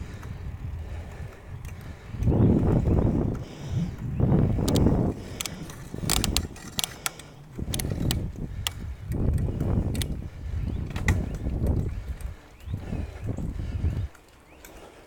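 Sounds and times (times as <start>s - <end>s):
wind on microphone: 0.0s - 14.2s
bike clicks and rattles: 0.0s - 15.0s
bike tyres rumbling on pavement: 0.0s - 15.0s.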